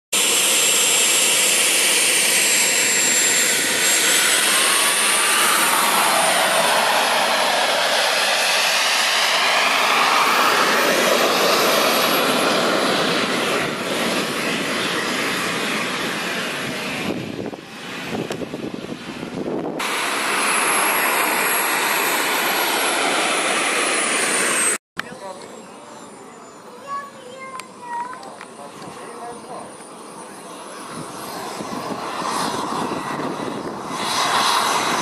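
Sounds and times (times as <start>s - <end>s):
model jet turbine whining: 0.2s - 35.0s.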